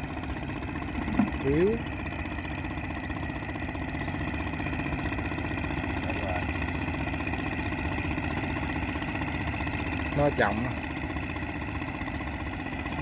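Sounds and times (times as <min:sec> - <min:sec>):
small engine running: 0:00.0 - 0:13.0.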